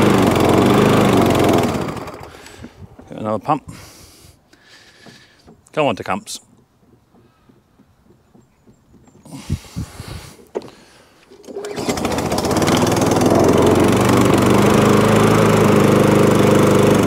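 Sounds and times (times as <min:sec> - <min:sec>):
lawnmower engine running: 0:00.0 - 0:05.3, 0:09.2 - 0:17.0.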